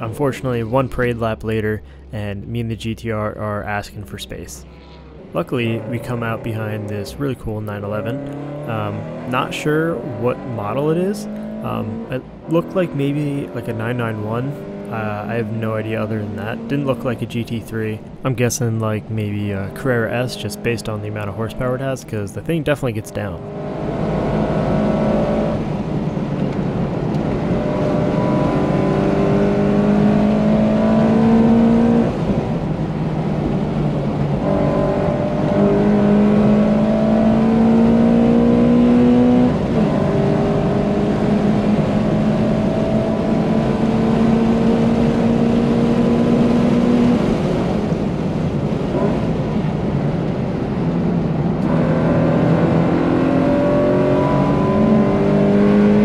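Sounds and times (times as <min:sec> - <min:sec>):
car engine at high revs: 0:00.0 - 0:02.0, 0:02.6 - 0:56.0.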